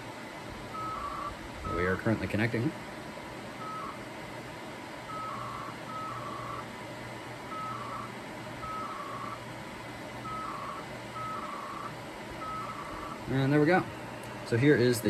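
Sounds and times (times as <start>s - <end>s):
modem two-tone bursts: 0.7s - 2.2s, 3.5s - 4.2s, 5.0s - 14.0s.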